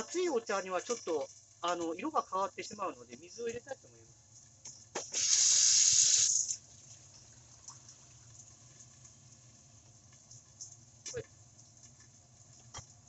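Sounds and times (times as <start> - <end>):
tap water running into a cup: 5.0 - 9.0.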